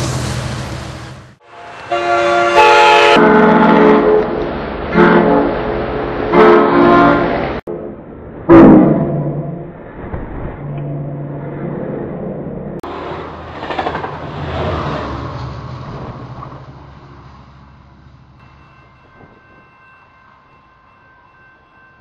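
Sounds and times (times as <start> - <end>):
diesel locomotive engine droning: 0.0 - 10.0, 10.7 - 22.0
wheels clattering on rails: 12.9 - 20.5.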